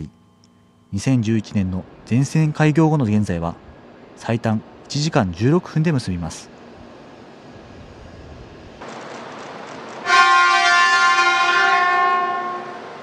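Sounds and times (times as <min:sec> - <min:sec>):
train horn blast: 0:10.0 - 0:13.0.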